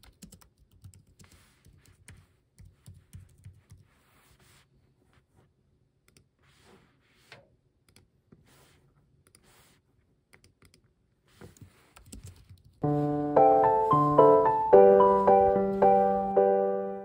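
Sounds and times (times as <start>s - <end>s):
typing on computer keyboard: 0.0s - 3.9s, 12.0s - 12.8s
piano music: 12.8s - 17.0s.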